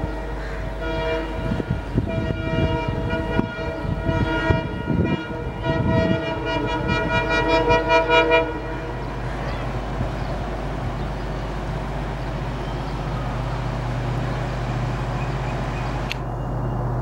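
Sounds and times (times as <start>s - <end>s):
locomotive horn blasts: 0.0s - 10.1s.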